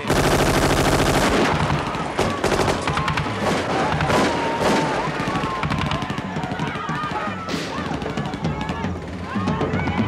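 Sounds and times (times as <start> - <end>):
gunshots: 0.0 - 6.6.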